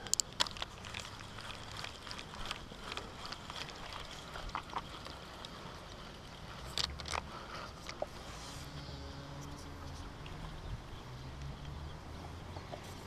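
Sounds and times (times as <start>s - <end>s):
fishing reel clicks and rustles: 0.0s - 10.2s.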